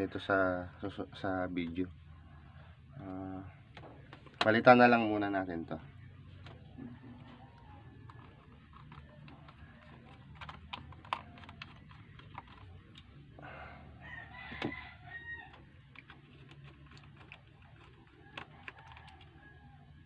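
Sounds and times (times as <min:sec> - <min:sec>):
rooster crowing: 0:06.8 - 0:08.3, 0:13.4 - 0:15.8, 0:18.1 - 0:20.0.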